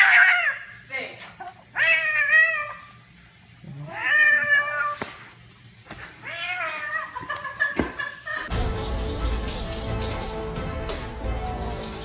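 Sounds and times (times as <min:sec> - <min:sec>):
cat meowing: 0:01.7 - 0:02.9, 0:03.8 - 0:05.0, 0:06.2 - 0:07.2.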